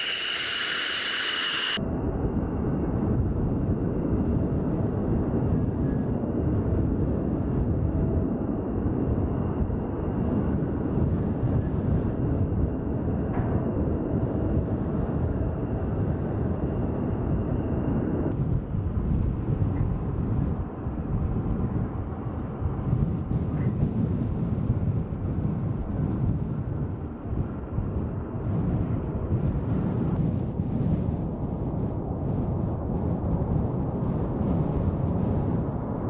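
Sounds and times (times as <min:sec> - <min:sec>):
jet engines whining: 0:00.0 - 0:02.3
turboprop plane rumbling: 0:00.0 - 0:36.0.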